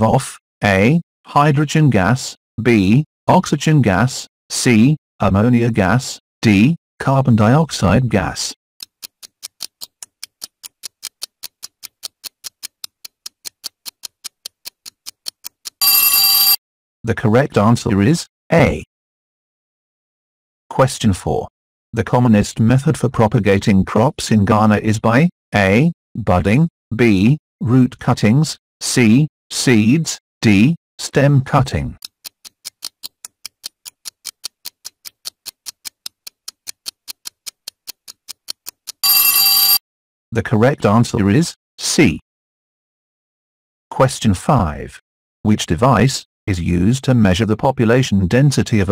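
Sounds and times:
timer ticking fast: 8.8s - 16.6s, 32.0s - 39.8s
electronic bell ring: 15.8s - 16.6s, 39.0s - 39.8s.

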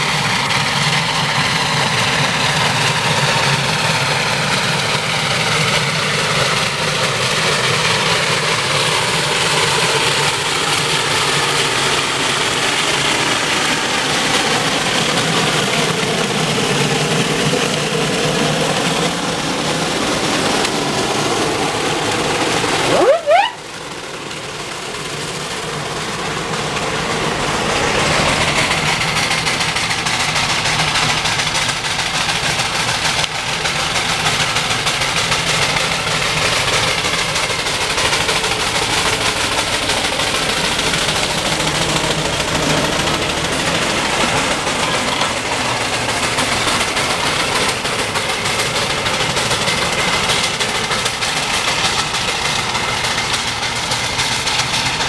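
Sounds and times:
steam traction engine exhaust beats: 0.0s - 55.0s
short rising squeal: 22.8s - 23.7s.

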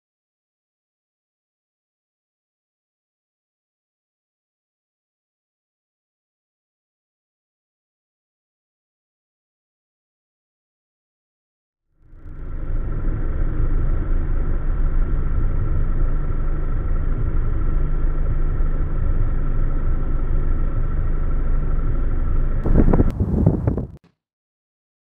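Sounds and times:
car engine and tyre rumble: 12.0s - 24.0s.

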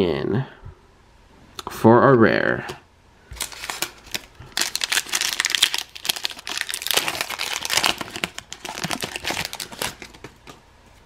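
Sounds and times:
foil wrapper crinkling: 3.4s - 10.6s.

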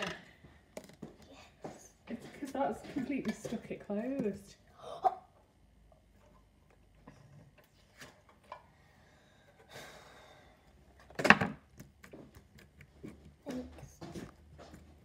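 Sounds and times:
objects clicking and knocking: 0.0s - 1.2s.

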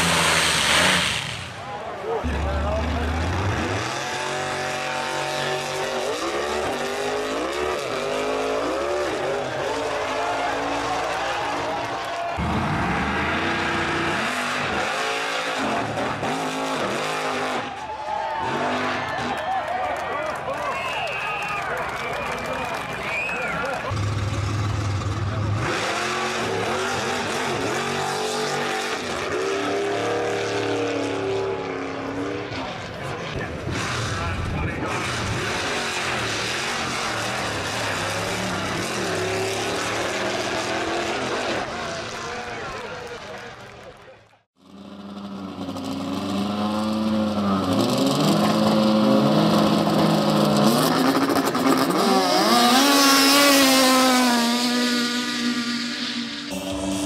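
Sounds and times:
drag racing car engine revving: 0.0s - 17.8s, 22.4s - 43.8s, 44.6s - 57.0s.

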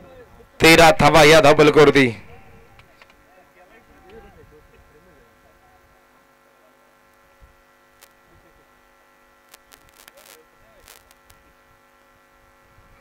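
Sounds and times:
faint electrical hum: 0.0s - 13.0s.

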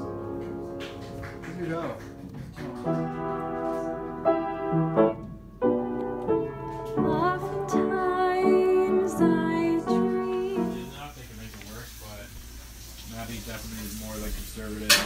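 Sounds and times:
piano chords: 0.0s - 11.4s.

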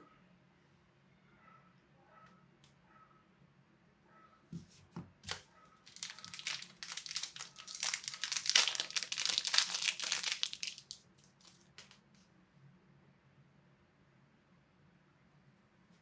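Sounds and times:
plastic packaging crinkling: 5.3s - 12.0s.

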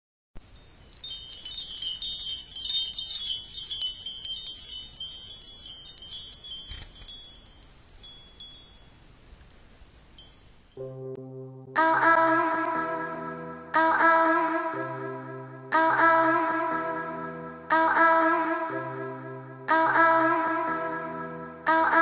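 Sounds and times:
tinkling glass-like chimes: 0.4s - 11.0s.

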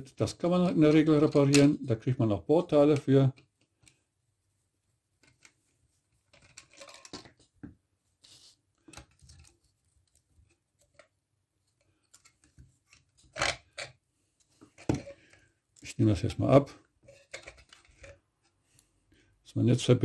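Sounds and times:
clicks and scrapes of circuit board: 6.2s - 7.4s.

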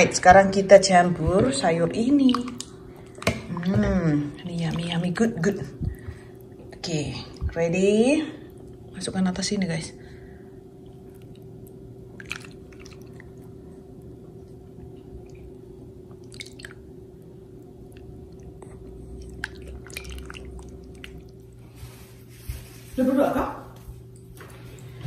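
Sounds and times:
steady low hum: 0.0s - 25.0s
soft wet squishes: 2.1s - 7.5s, 10.8s - 23.0s
broth being ladled: 16.2s - 16.9s, 19.2s - 21.9s.

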